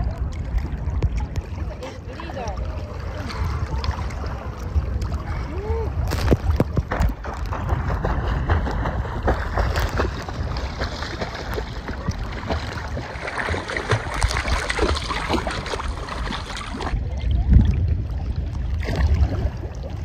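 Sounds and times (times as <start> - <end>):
seawater lapping and sloshing: 0.0 - 20.0
water splashes and gurgles: 0.0 - 20.0
wind buffeting microphone: 0.0 - 20.0.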